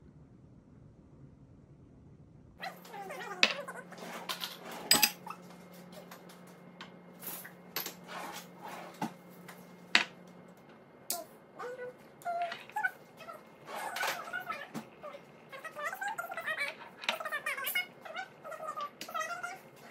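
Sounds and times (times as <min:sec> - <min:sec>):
steady low hum: 0:00.0 - 0:19.9
dishes clinking on stone: 0:04.3 - 0:05.2.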